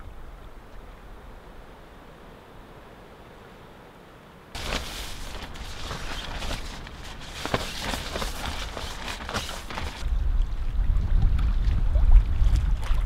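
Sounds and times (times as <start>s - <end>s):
tent fabric rustling and crinkling: 4.6s - 10.0s.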